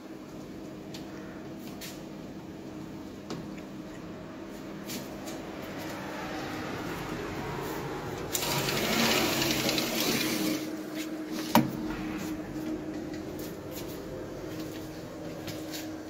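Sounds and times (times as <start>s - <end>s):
roller blind motor humming: 2.2s - 16.0s
rushing noise: 4.8s - 10.0s.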